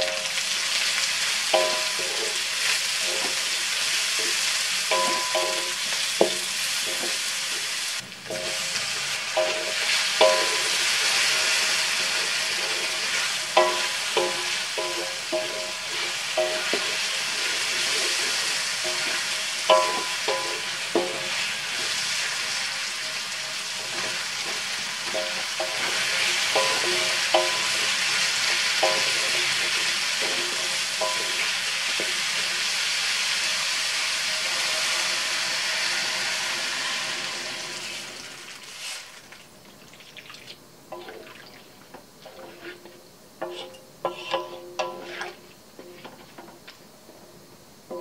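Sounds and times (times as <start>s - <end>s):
vegetables sizzling in a wok: 0.0s - 48.0s
spatula scraping and knocking pan: 1.5s - 7.6s, 9.4s - 22.0s, 23.8s - 32.5s, 42.0s - 47.3s.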